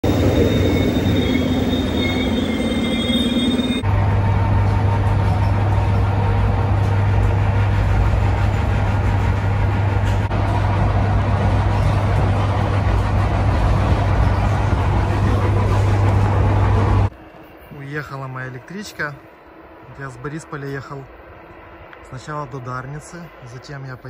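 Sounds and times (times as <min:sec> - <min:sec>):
electric train humming: 0:00.0 - 0:24.0
wheel squeal: 0:00.1 - 0:03.8.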